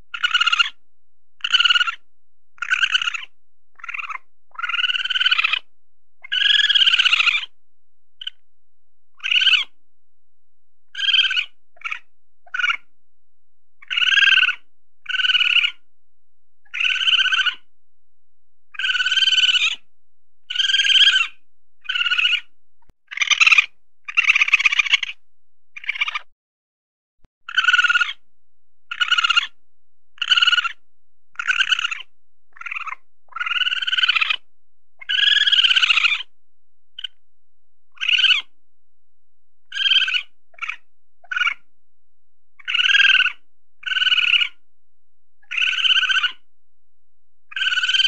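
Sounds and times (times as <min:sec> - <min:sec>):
weasel high-pitched calls: 0:00.1 - 0:00.8, 0:01.4 - 0:02.0, 0:02.6 - 0:07.6, 0:08.2 - 0:08.4, 0:09.2 - 0:09.8, 0:10.9 - 0:12.9, 0:13.8 - 0:15.9, 0:16.7 - 0:17.7, 0:18.7 - 0:19.9, 0:20.5 - 0:22.5, 0:23.1 - 0:25.2, 0:25.8 - 0:26.3, 0:27.4 - 0:28.2, 0:28.9 - 0:29.6, 0:30.2 - 0:30.8, 0:31.4 - 0:36.3, 0:37.0 - 0:37.2, 0:37.9 - 0:38.5, 0:39.6 - 0:41.7, 0:42.6 - 0:44.6, 0:45.4 - 0:46.5, 0:47.5 - 0:48.0.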